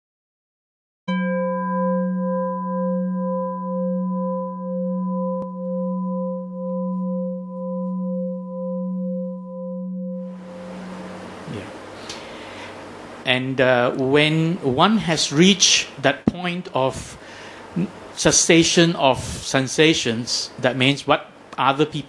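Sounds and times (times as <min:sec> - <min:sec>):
singing bowl ringing: 0:01.1 - 0:12.0.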